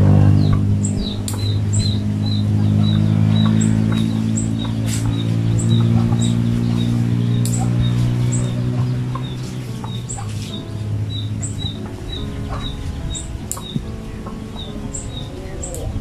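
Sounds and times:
bird chirping: 0.0 - 16.0
loud low drone: 0.0 - 16.0.

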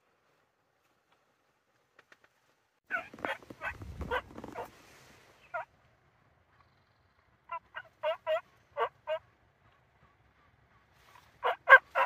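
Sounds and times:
wild turkey gobbling: 2.9 - 4.8, 7.5 - 12.0.

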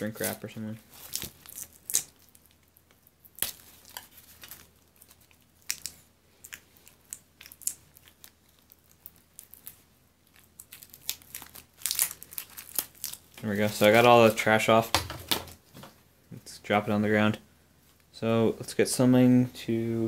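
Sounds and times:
plastic shrink wrap crinkling: 0.0 - 15.8.

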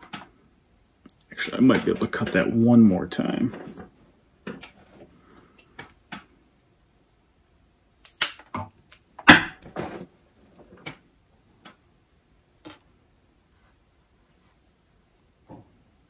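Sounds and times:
small parts and tools clicking on wood: 8.0 - 9.4.

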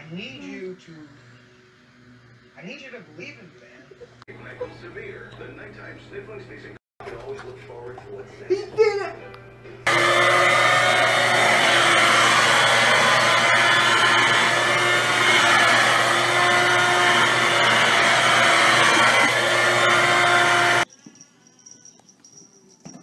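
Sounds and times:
handheld vacuum cleaner running: 9.9 - 20.9.

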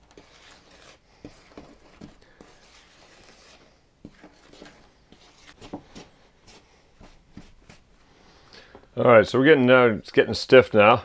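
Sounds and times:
spatula scraping bowl: 0.0 - 6.6.

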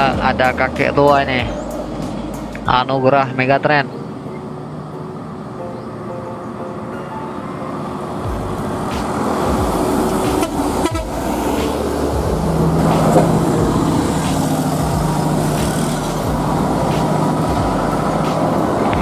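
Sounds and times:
bus diesel engine passing: 0.0 - 19.0.

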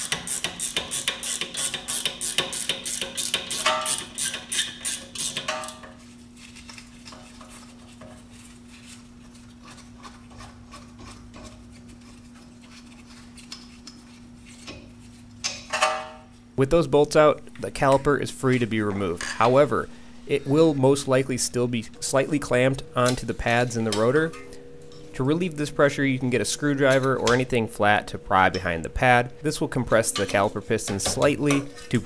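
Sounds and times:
ratcheting wrench clicking: 0.0 - 5.8
steady low hum: 1.0 - 32.0.

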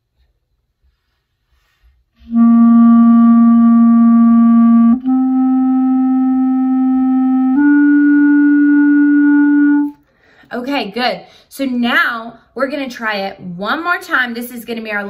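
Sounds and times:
clarinet playing long tones: 2.2 - 10.0.

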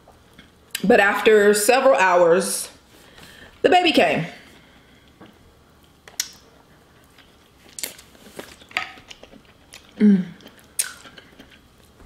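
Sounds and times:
person chewing and smacking: 5.1 - 12.0.

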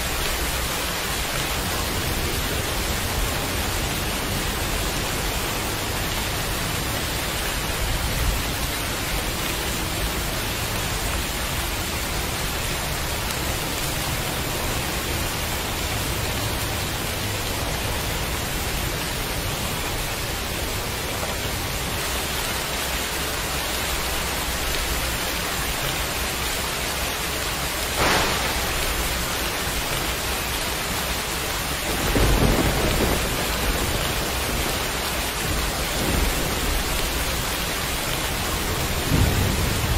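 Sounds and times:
heavy rain: 0.0 - 39.9
sharp crack: 28.0 - 29.8.

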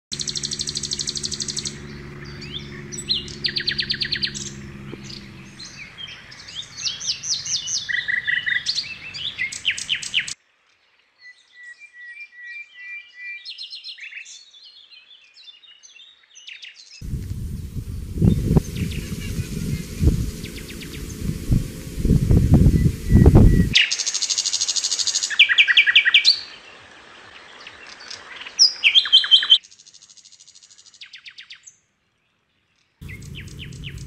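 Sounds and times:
birds chirping and trilling: 0.1 - 10.3, 17.0 - 23.8, 33.0 - 34.0
low steady hum: 0.2 - 5.8, 17.0 - 23.8, 33.0 - 34.0.

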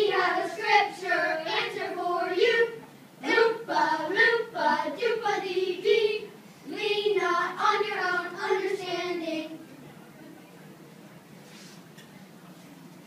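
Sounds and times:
children singing: 0.0 - 9.5.

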